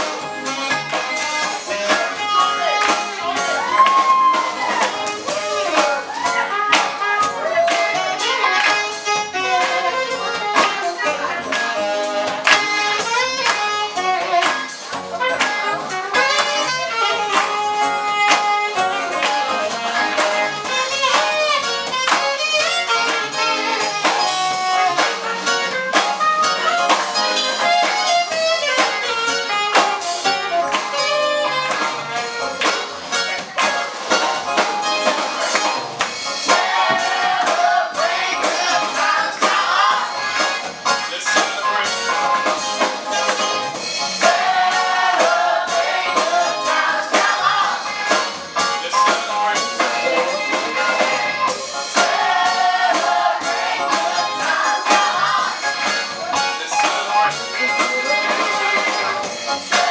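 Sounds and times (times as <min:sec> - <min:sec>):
brass playing: 0:00.0 - 0:59.9
steady beat: 0:00.0 - 0:59.9
hand claps: 0:08.6 - 0:08.9, 0:12.4 - 0:12.8, 0:13.4 - 0:13.7
choir singing: 0:35.1 - 0:43.2, 0:44.1 - 0:59.9.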